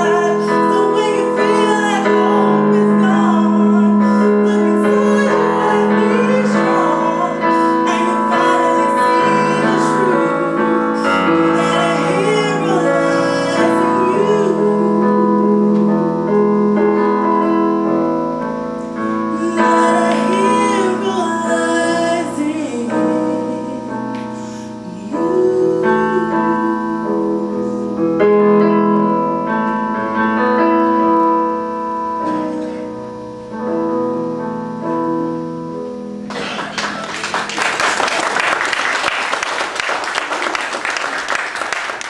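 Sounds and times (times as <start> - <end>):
woman singing gospel: 0.0 - 16.0, 19.2 - 27.9
piano chords: 0.0 - 42.0
congregation applauding: 36.3 - 42.0.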